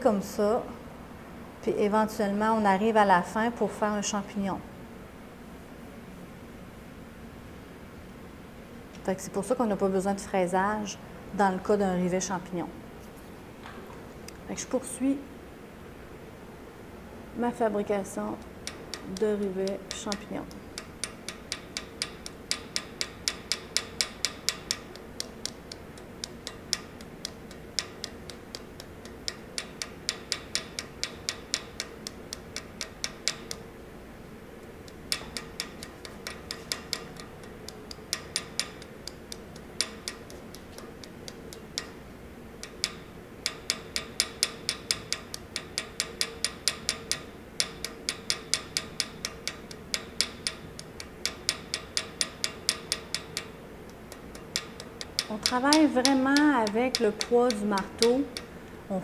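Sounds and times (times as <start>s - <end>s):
hammer tapping metal rivet: 18.4s - 33.7s, 34.9s - 42.0s, 42.6s - 58.6s.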